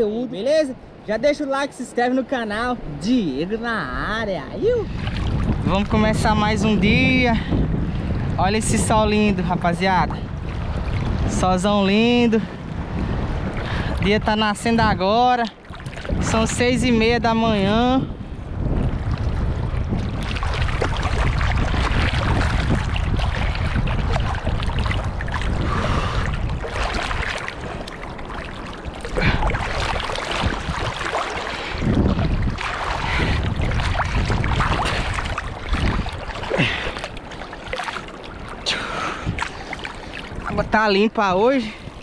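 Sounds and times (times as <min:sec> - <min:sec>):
lapping waves: 0:00.0 - 0:42.0
wind rumble on microphone: 0:00.0 - 0:42.0
swimmer splashing: 0:20.0 - 0:42.0.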